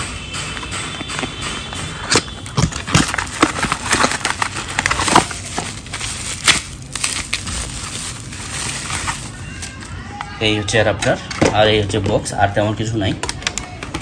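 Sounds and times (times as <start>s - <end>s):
bubble wrap and cardboard crinkling: 0.5s - 10.5s.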